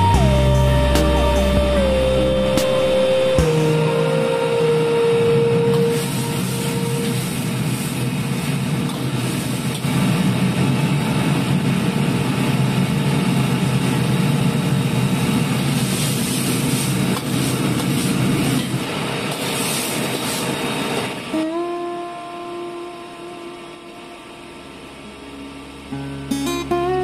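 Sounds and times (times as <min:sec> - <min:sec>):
gas burner rumbling: 0:00.0 - 0:27.0
vegetables sizzling in sauce: 0:05.9 - 0:10.4, 0:15.0 - 0:21.0.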